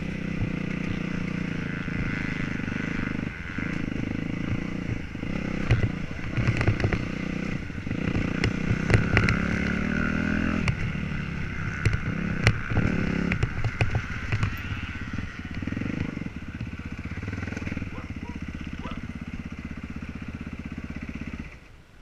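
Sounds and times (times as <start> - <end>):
motocross bike engine revving: 0.0 - 21.7
sharp clicks and knocks: 5.6 - 7.0, 8.4 - 9.5, 11.8 - 14.6.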